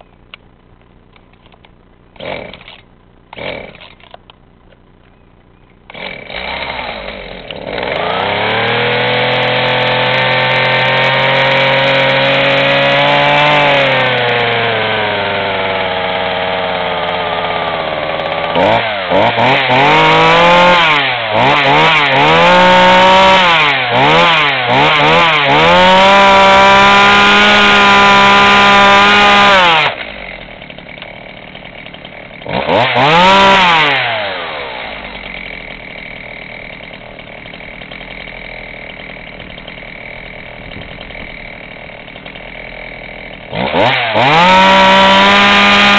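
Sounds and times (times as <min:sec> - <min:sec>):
chainsaw revving: 0:02.2 - 0:04.1, 0:05.9 - 0:45.9.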